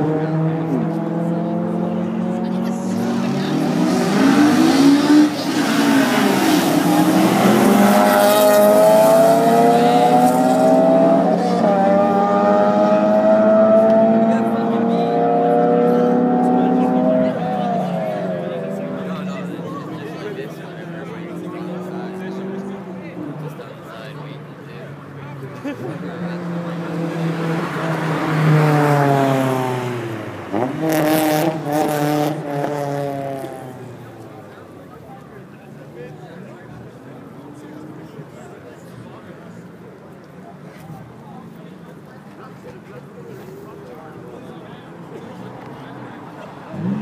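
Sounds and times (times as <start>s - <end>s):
car engine accelerating: 0.0s - 23.6s, 25.7s - 35.2s, 40.2s - 47.0s.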